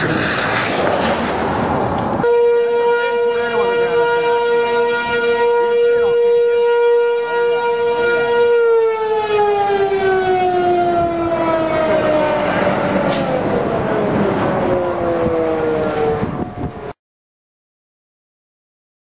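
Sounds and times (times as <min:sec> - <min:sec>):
warning siren winding down: 0:02.2 - 0:17.0.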